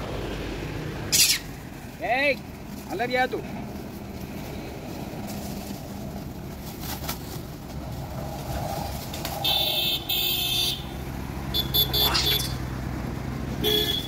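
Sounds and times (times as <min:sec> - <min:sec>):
road traffic: 0:00.0 - 0:14.0
vehicle horn: 0:09.4 - 0:12.6, 0:13.6 - 0:14.0.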